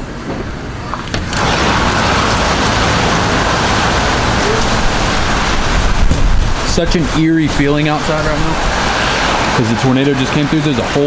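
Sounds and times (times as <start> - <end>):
heavy rain: 0.0 - 11.0
wind: 0.0 - 11.0.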